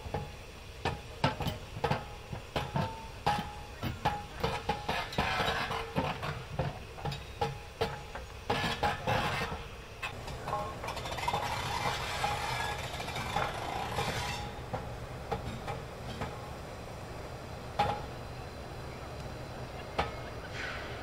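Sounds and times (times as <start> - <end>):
steam hiss: 0.0 - 21.0
train rolling past: 0.0 - 21.0.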